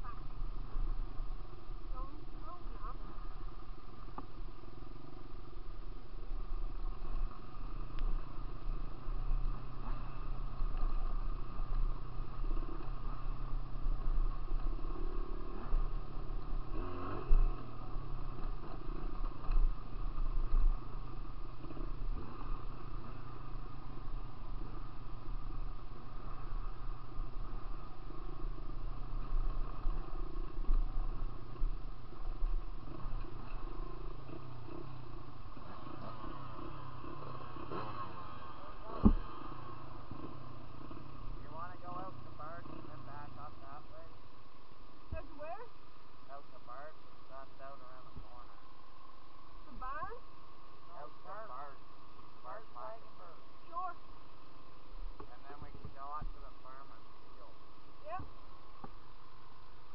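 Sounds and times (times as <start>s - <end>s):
dirt bike engine revving: 0.0s - 43.8s.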